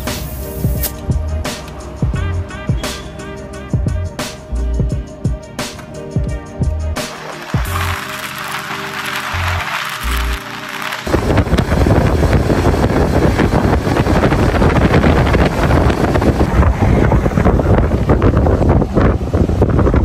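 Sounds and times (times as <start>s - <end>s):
music: 0.0s - 19.7s
wind buffeting microphone: 11.1s - 20.0s.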